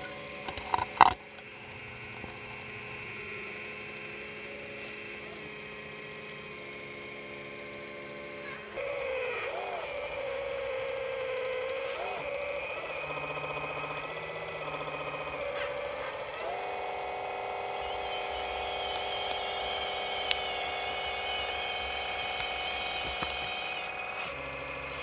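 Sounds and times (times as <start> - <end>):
hydraulic pump humming: 0.0 - 25.0
sharp clicks: 8.8 - 25.0.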